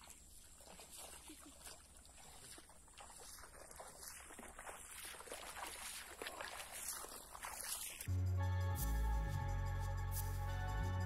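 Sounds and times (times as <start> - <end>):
shallow water sloshing: 0.0 - 8.1.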